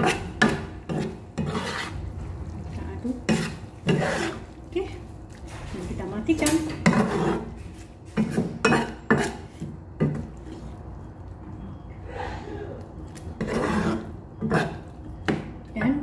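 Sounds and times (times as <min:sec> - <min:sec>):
spatula scraping a wok: 0:00.0 - 0:02.3, 0:03.0 - 0:04.6, 0:06.7 - 0:10.2, 0:13.4 - 0:14.9.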